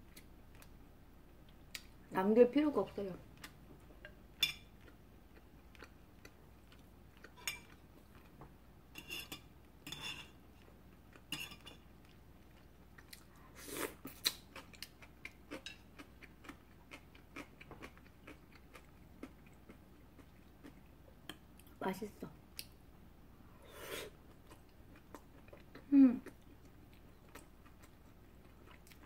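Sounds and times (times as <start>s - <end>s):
soft chewing with mouth clicks: 0.0s - 2.0s, 3.2s - 8.6s, 9.5s - 21.8s, 22.4s - 22.8s, 23.8s - 29.0s
cutlery clinking against dish: 9.0s - 10.4s, 11.3s - 11.8s.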